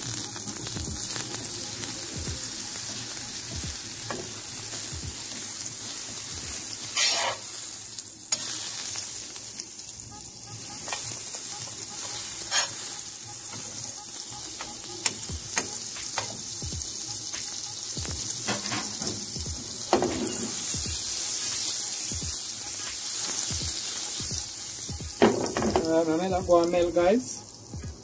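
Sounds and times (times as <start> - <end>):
butter sizzling in a pan: 0.0 - 28.0
metal tongs clicking against pan: 8.3 - 8.5.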